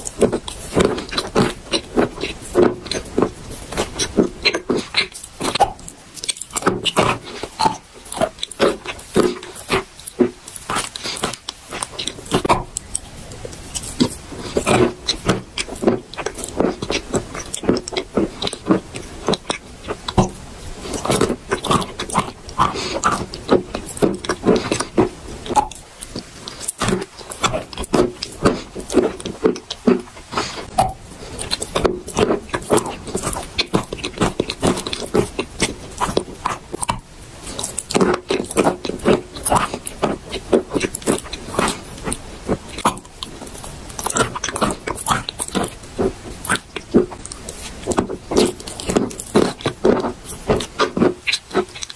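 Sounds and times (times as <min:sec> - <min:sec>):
chalk crunching while chewed: 0:00.0 - 0:51.9
pasty mouth sounds: 0:00.0 - 0:51.9.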